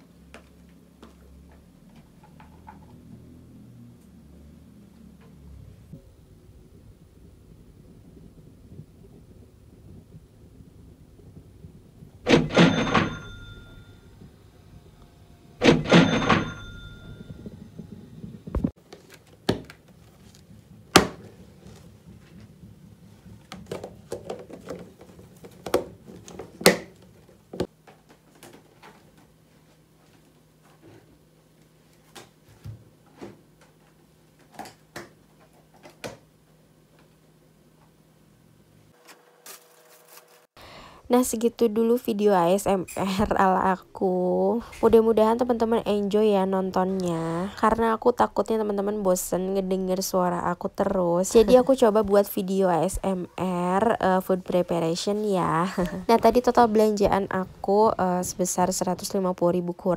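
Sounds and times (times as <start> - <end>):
faint steady hum: 0.0 - 59.9
cash register clatter and bell: 12.3 - 14.3, 15.6 - 17.8.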